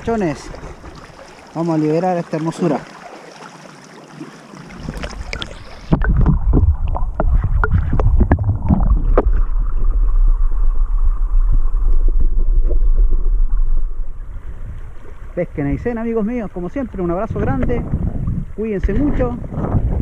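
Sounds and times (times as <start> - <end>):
muffled underwater current rumble: 0.0 - 1.5, 4.6 - 20.0
underwater stream hiss: 3.0 - 6.0
sharp bubbling clicks: 4.8 - 10.4.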